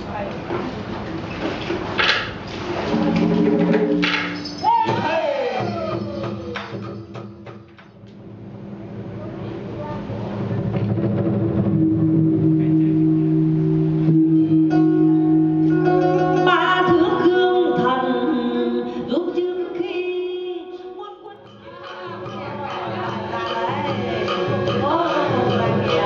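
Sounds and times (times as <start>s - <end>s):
plucked strings with bending pitches: 2.9s - 7.4s, 10.7s - 18.8s
long held instrumental notes: 10.9s - 18.9s
person singing: 14.5s - 26.0s.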